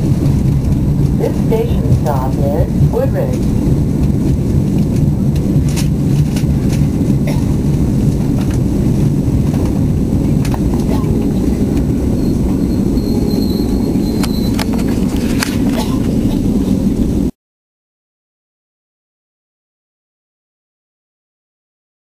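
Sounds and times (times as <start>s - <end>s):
train rumbling on rails: 0.0s - 17.3s.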